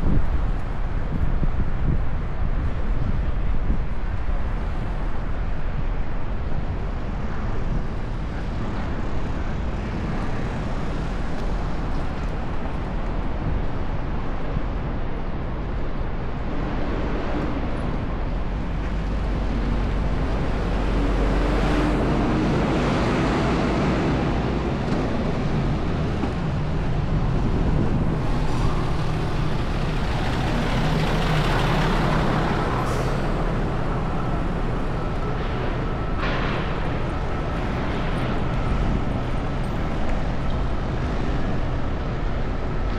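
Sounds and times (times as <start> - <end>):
vehicles passing: 0.0 - 42.9
wind rumble on microphone: 0.0 - 42.9
engine drone: 16.8 - 42.9.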